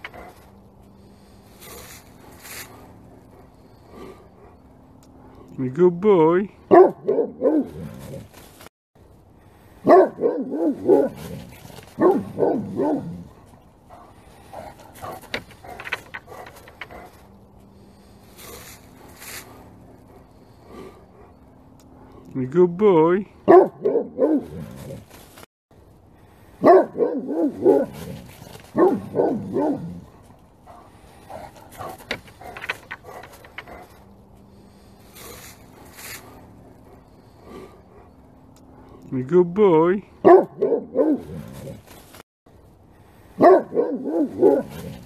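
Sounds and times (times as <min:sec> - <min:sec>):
dog barking: 0:06.7 - 0:07.8, 0:09.8 - 0:11.3, 0:12.0 - 0:13.3, 0:23.5 - 0:24.6, 0:26.6 - 0:28.1, 0:28.7 - 0:30.0, 0:40.2 - 0:41.4, 0:43.4 - 0:44.9.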